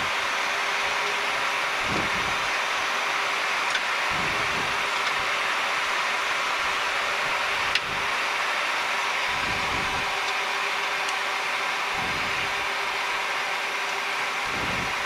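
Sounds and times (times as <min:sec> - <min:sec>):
steady hum: 0:00.0 - 0:15.0
rush of airflow: 0:01.8 - 0:02.6, 0:04.1 - 0:05.8, 0:09.2 - 0:10.2, 0:11.9 - 0:12.6, 0:14.4 - 0:15.0.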